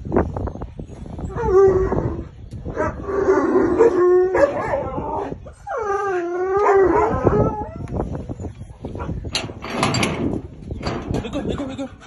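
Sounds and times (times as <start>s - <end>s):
dog howling: 2.9s - 7.9s.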